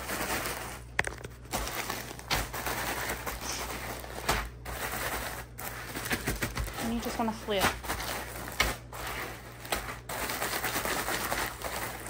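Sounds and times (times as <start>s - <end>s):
crackers rattling: 0.0s - 12.0s
plastic bag crinkling: 0.0s - 12.0s
bag knocking on countertop: 5.9s - 8.9s.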